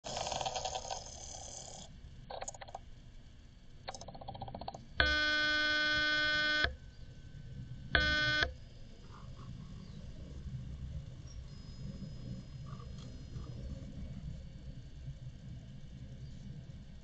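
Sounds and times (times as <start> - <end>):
raspy rattles: 0.0 - 2.8
electronic buzzer tones: 5.0 - 6.8, 8.0 - 8.6.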